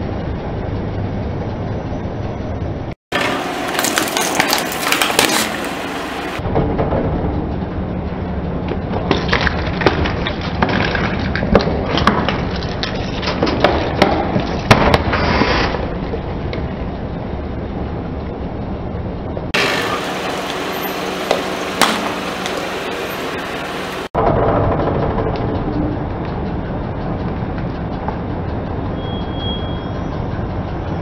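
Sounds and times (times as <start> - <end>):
low tyre rumble: 0.0 - 31.0.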